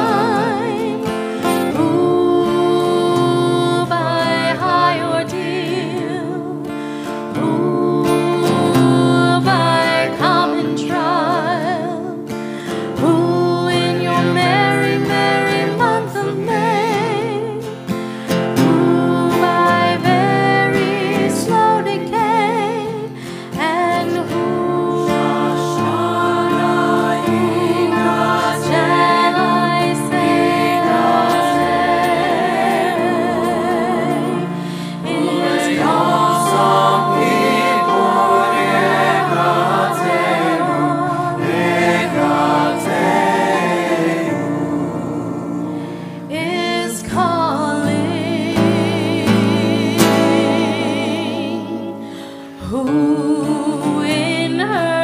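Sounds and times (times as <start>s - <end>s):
choir voices: 0.0s - 17.5s, 18.4s - 55.0s
voices singing with vibrato: 0.0s - 17.5s, 18.6s - 55.0s
acoustic guitar: 0.0s - 55.0s
piano accompaniment: 23.8s - 49.2s.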